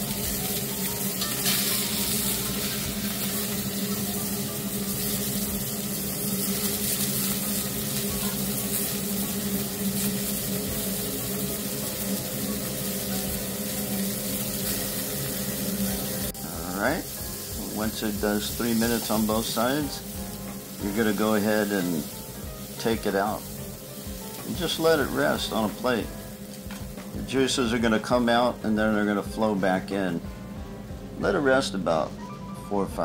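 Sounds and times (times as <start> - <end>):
steak sizzling in a pan: 0.0 - 28.5
vent fan humming: 0.0 - 33.0.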